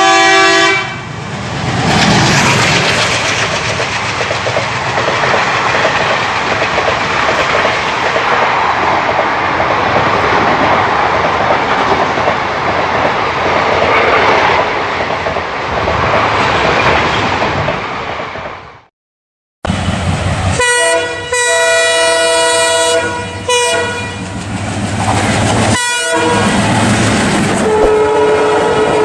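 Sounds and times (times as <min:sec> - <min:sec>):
train wheels clattering on rails: 0:01.4 - 0:18.5, 0:24.0 - 0:29.0.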